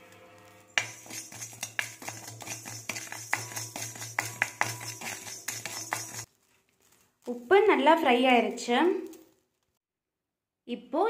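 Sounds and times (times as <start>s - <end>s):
spatula scraping salt in pan: 0.4s - 6.3s.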